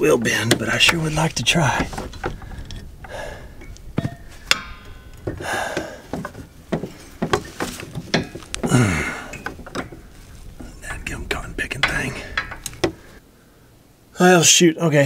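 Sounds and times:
strained breaths: 1.8 - 10.8, 12.0 - 13.9
person grunting: 8.6 - 9.3.

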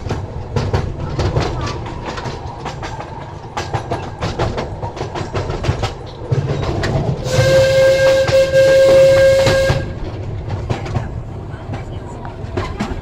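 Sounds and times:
train wheels clicking over rail joints: 0.0 - 13.0
train whistle blast: 7.2 - 10.0.

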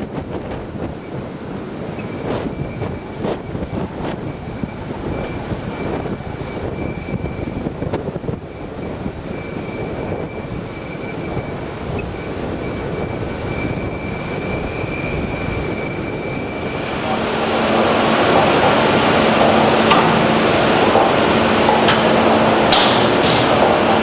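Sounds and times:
wind buffeting microphone: 0.0 - 24.0
drilling rig machinery: 10.6 - 24.0
high-pitched whine: 12.7 - 24.0.

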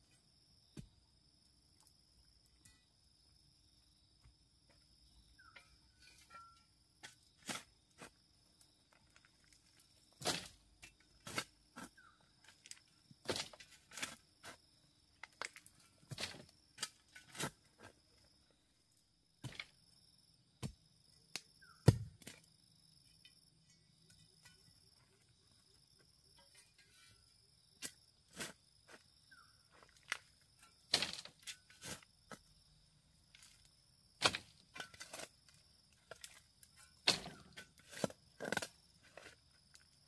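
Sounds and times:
hand tool knocking and thudding: 21.8 - 22.3.

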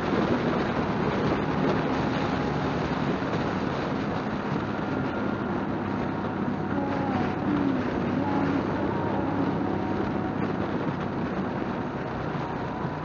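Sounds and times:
motorcycle engine cruising: 0.0 - 13.0
wind rush on microphone: 0.0 - 13.0.

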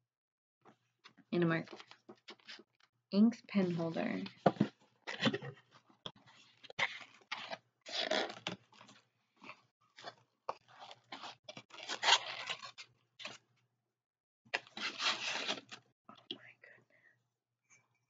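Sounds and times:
packing crinkling and tearing: 6.8 - 13.4.

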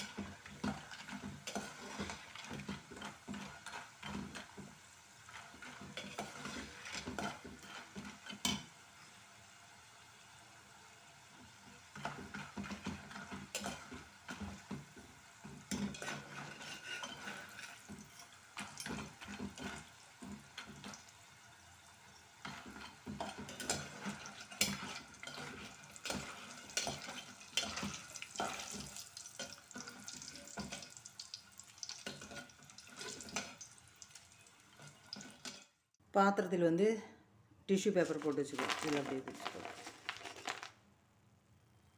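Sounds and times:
metal spoon scraping a pot: 0.0 - 8.7, 11.9 - 14.8, 15.5 - 21.0, 22.4 - 30.8
oil sizzling: 0.0 - 36.0, 38.0 - 41.0.

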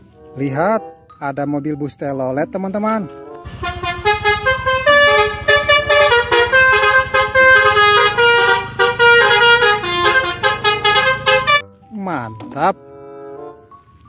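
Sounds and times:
bus horn playing melody: 3.1 - 11.8, 12.8 - 13.7
low steady rumble: 3.5 - 11.4.

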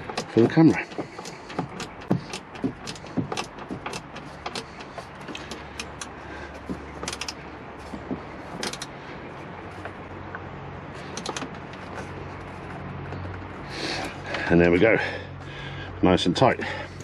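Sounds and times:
screw tightening clicks: 0.0 - 6.2, 7.0 - 7.4, 8.6 - 8.9.

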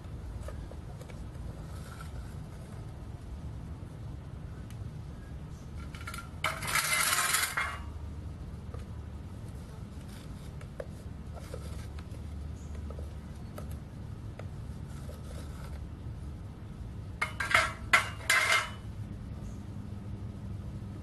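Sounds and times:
low furnace rumble: 0.0 - 21.0
metal tongs scraping crucible: 5.8 - 8.0, 17.2 - 18.9.

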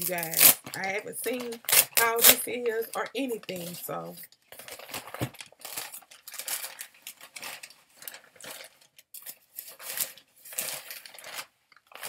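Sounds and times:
package being torn open: 0.0 - 0.8
packing paper rustling: 0.0 - 12.0.

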